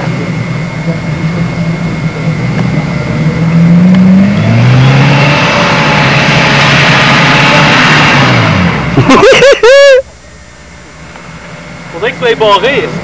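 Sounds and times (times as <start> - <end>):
vehicle engine revving under load: 0.0 - 9.3.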